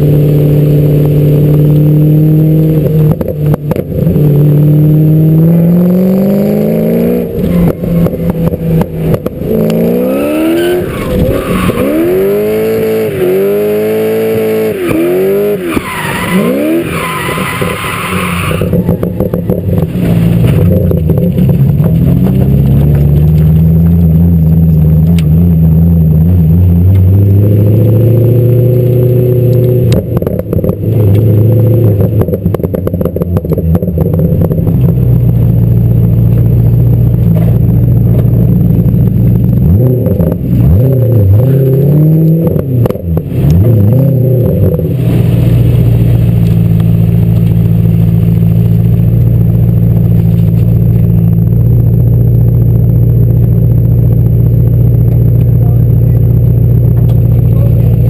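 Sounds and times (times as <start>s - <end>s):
car engine revving: 0.0s - 58.0s
tyres squealing: 15.1s - 19.8s.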